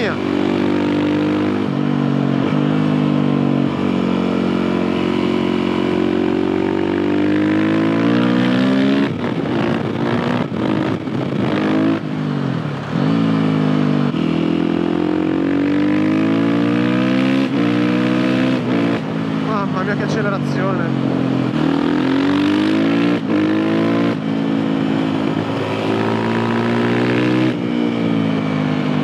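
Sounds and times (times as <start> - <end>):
motorcycle engine revving: 0.0 - 29.0.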